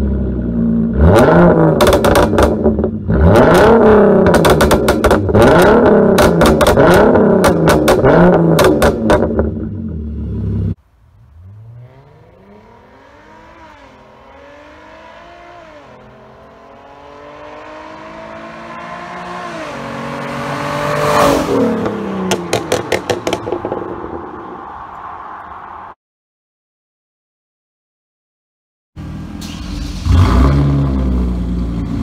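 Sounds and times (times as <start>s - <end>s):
engine revving: 0.0s - 23.9s, 29.0s - 32.0s
exhaust pops: 1.7s - 3.0s, 4.2s - 9.7s, 22.2s - 24.1s
car engine passing by: 11.2s - 26.0s.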